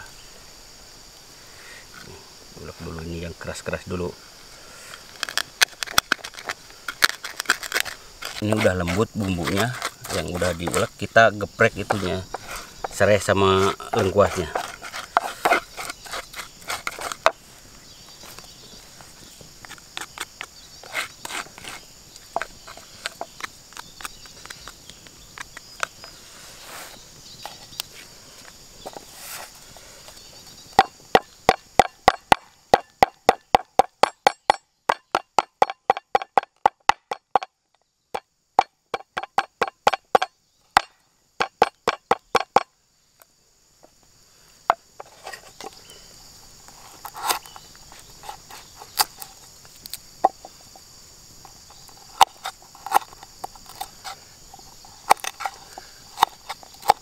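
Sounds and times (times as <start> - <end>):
wooden pestle pounding on board: 30.8 - 37.5, 38.6 - 42.7.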